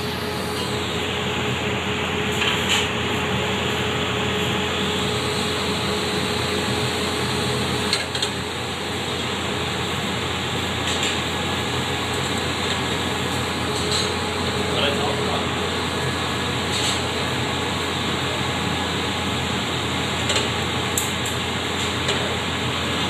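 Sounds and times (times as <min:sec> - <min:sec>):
furnaces and fans roaring: 0:00.0 - 0:23.0.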